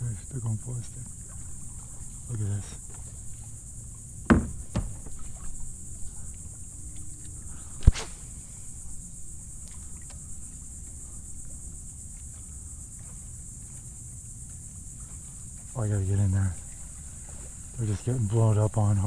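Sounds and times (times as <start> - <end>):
insects buzzing: 0.0 - 19.0
sharp knocks: 4.2 - 5.5.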